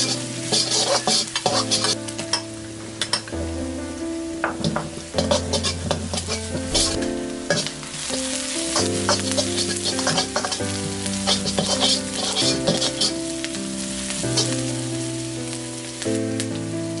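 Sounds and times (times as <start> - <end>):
metal ladle scraping pan: 0.0 - 3.3, 4.6 - 13.3, 14.3 - 14.6
food sizzling in oil: 0.0 - 17.0.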